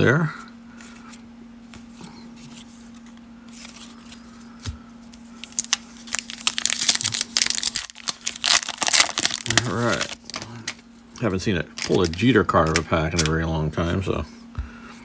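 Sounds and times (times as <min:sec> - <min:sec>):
foil wrapper crinkling and tearing: 0:05.3 - 0:13.5.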